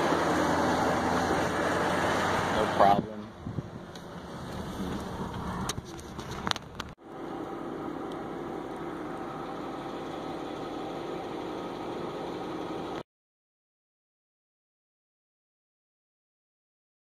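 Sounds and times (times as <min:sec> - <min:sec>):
car rumbling over dirt road: 0:00.0 - 0:13.0.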